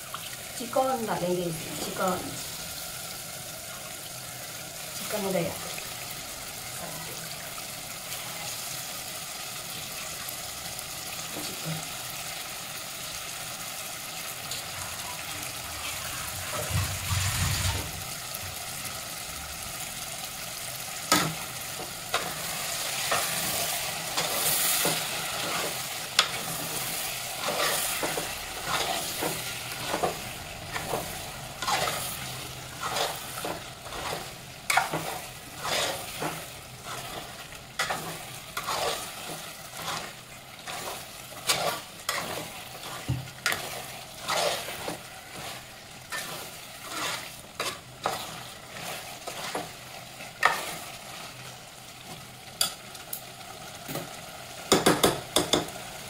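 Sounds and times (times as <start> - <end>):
chicken sizzling in pot: 0.0 - 56.0
spoon scraping pot: 22.1 - 49.8.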